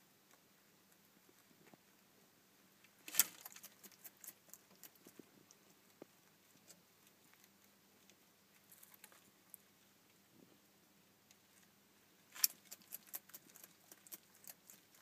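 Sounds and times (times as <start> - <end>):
lizard chewing crunchily: 3.0 - 9.6, 12.3 - 15.0.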